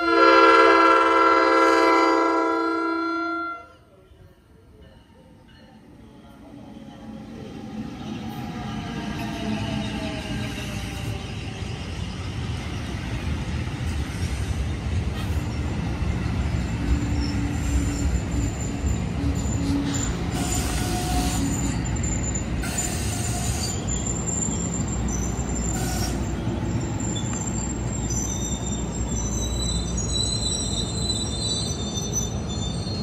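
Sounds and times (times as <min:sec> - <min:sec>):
train wheels rumbling on rail: 0:05.6 - 0:33.0
high wheel squeals: 0:15.2 - 0:33.0.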